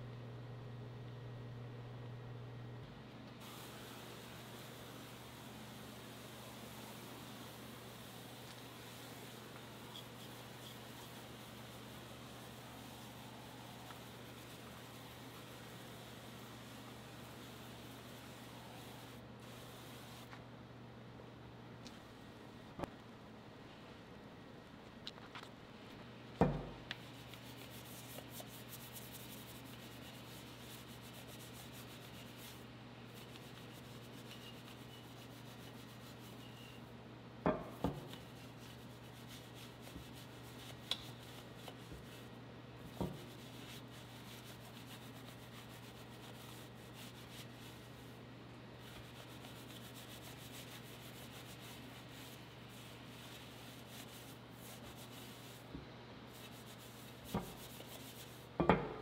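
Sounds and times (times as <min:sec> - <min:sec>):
brush scrubbing wet wheel: 0:06.3 - 0:19.1, 0:27.0 - 0:36.8, 0:37.8 - 0:48.2, 0:48.8 - 0:55.7, 0:56.3 - 0:58.6.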